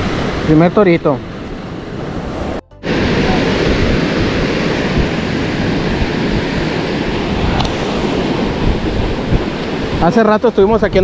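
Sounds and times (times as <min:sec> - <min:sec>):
surf breaking on shore: 0:00.0 - 0:11.0
wind noise on microphone: 0:01.2 - 0:11.0.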